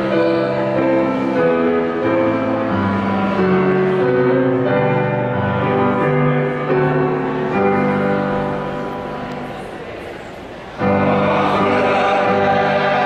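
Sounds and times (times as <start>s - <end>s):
mixed choir singing a carol: 9.6s - 13.0s.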